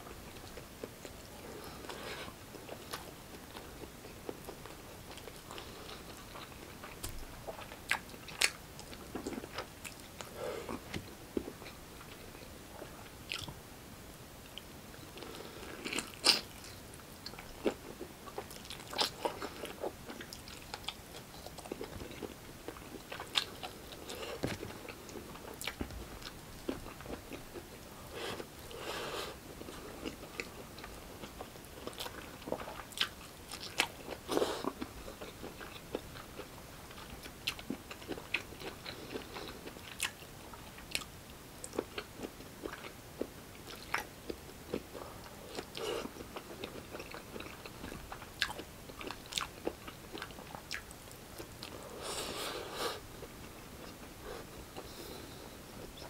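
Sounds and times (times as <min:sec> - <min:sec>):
close chewing and biting: 0:29.9 - 0:41.1, 0:44.7 - 0:51.8.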